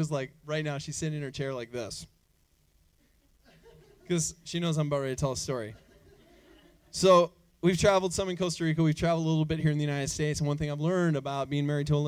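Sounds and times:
audience chuckling: 3.0 - 4.2, 5.7 - 6.9.

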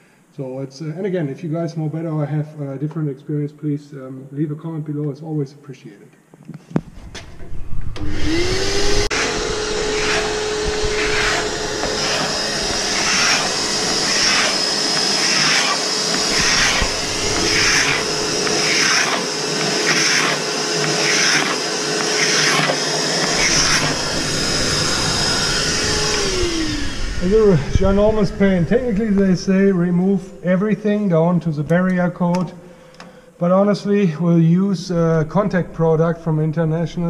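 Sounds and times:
vacuum cleaner running: 7.2 - 30.4
scraper scraping paint off hull: 9.1 - 24.0.

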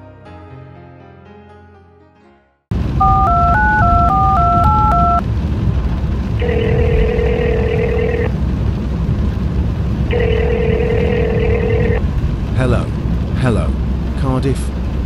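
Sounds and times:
car road noise: 2.8 - 15.0
phone ringing tone: 3.0 - 5.2, 6.4 - 8.3, 10.1 - 12.0
touch-tone keypad beeps: 3.0 - 5.2.

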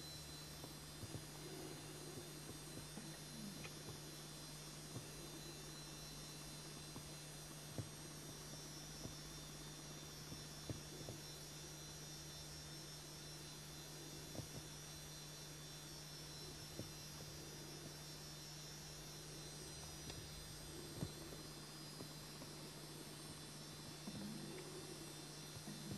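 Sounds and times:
faint electrical hum with hiss: 0.0 - 25.9.

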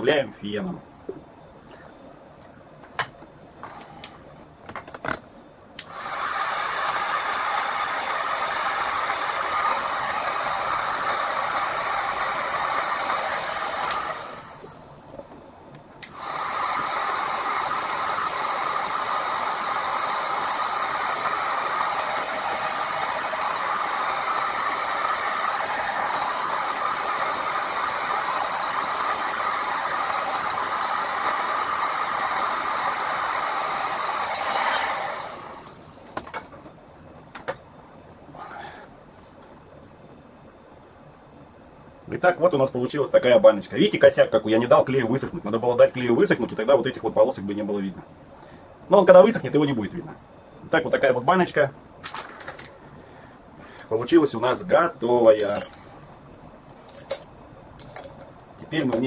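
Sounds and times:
heat gun blowing hot air: 5.8 - 15.1, 16.0 - 36.0.

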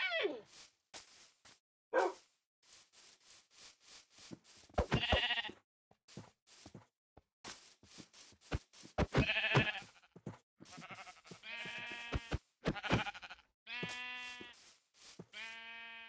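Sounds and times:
animal bleating: 4.8 - 5.6, 9.0 - 14.7, 15.3 - 16.0.

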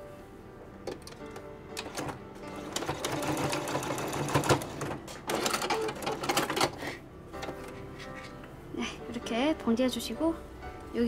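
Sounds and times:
sewing machine stitching: 1.8 - 6.8.

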